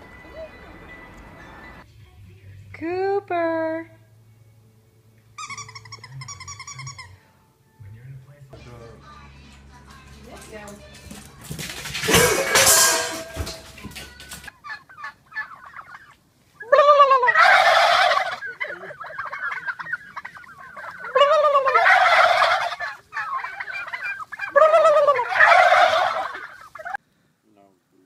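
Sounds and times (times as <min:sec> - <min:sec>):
turkeys gobbling: 0:05.4 - 0:07.2, 0:11.5 - 0:27.0.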